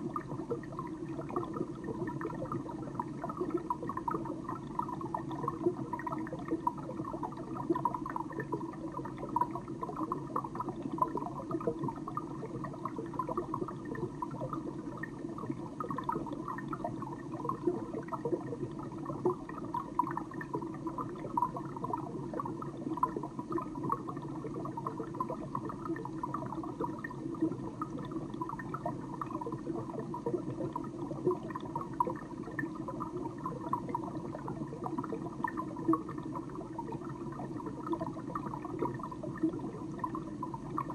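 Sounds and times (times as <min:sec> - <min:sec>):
small bubbling pops: 0:00.0 - 0:40.9.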